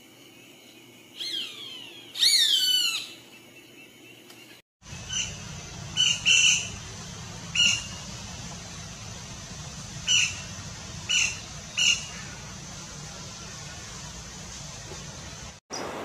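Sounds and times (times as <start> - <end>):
woodpeckers calling: 1.2 - 3.2, 4.9 - 8.2, 10.0 - 12.6
low background rumble: 4.8 - 15.6.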